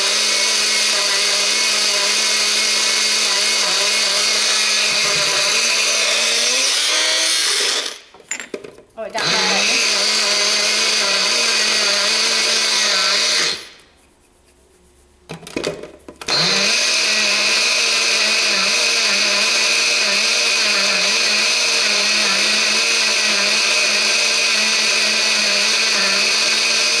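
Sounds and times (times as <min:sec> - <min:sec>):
blender motor running: 0:00.0 - 0:08.1, 0:09.2 - 0:13.8, 0:16.3 - 0:27.0
blender cup clattering on base: 0:08.2 - 0:08.9.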